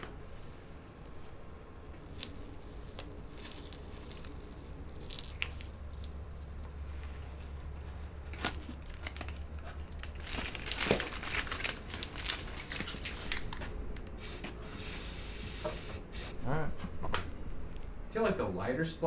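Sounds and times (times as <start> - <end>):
masking tape peeling and crumpling: 2.0 - 15.0.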